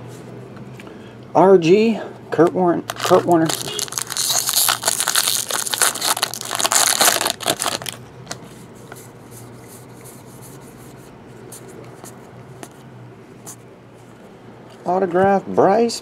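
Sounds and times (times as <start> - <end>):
foil wrapper crinkling and tearing: 2.8 - 8.4.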